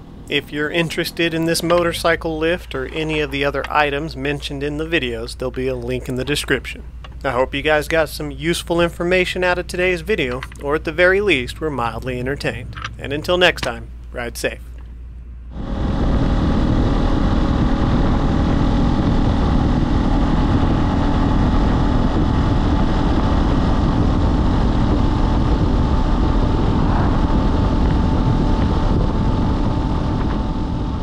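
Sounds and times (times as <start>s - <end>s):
motorcycle engine drone: 0.0s - 31.0s
wind rush on microphone: 15.5s - 31.0s.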